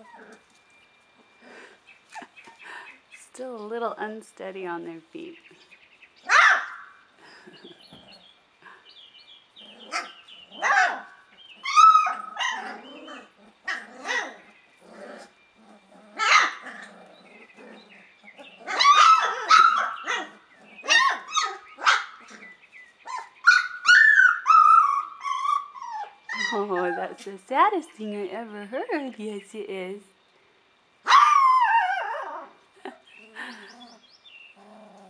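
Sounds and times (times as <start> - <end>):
puppies yipping and whining: 0.0 - 3.1, 9.5 - 27.4, 31.0 - 35.0.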